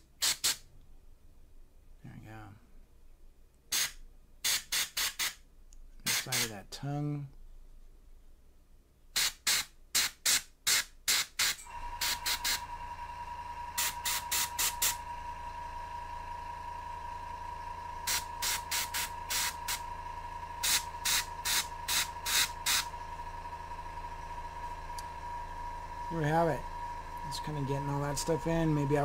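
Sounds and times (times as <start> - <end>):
airbrush hissing in short bursts: 0.0 - 0.6, 3.7 - 5.4, 6.1 - 6.5, 9.2 - 12.6, 13.8 - 15.0, 18.0 - 19.8, 20.6 - 22.9
steady hum with thin whine: 11.6 - 29.0.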